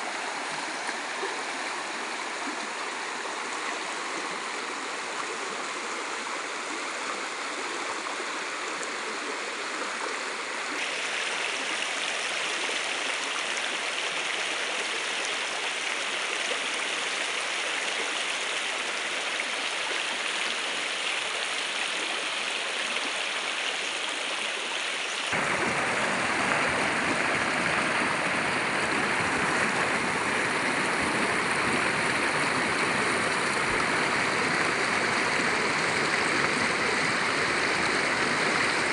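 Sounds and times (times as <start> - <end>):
river rushing over stones: 25.3 - 38.9
deep water rumble: 25.4 - 38.9.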